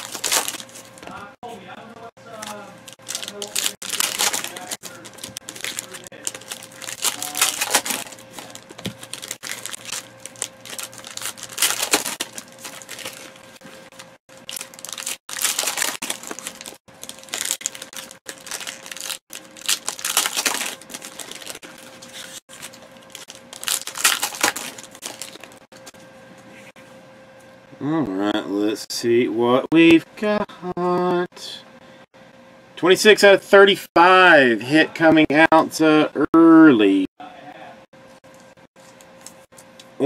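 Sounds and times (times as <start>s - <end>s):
foil wrapper crinkling and tearing: 0.0s - 1.2s, 2.3s - 25.9s
faint steady hum: 0.0s - 40.0s.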